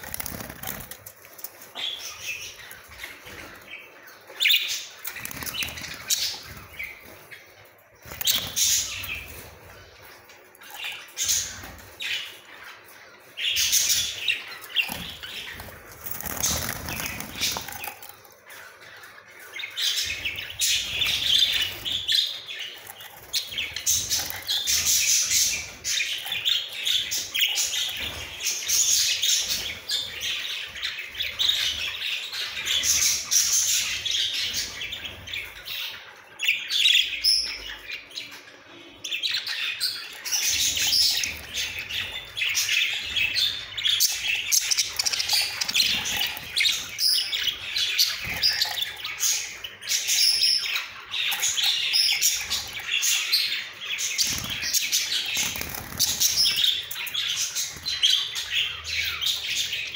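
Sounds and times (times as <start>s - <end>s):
budgerigars chattering and chirping: 1.7s - 10.0s, 10.6s - 59.9s.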